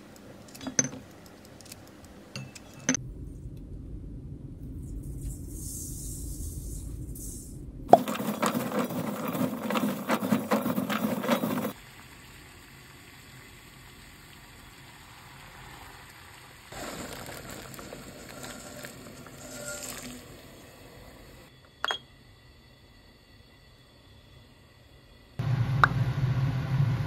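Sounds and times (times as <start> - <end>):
pods rattling in metal bowl: 7.9 - 11.8
water boiling quietly: 7.9 - 27.0
salt trickling onto pods: 8.0 - 21.4.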